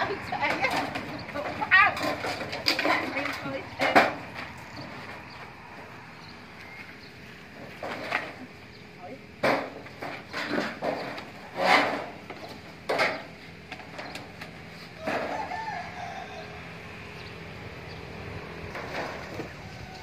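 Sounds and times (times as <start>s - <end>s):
rooster crowing: 15.0s - 17.1s, 19.4s - 20.0s.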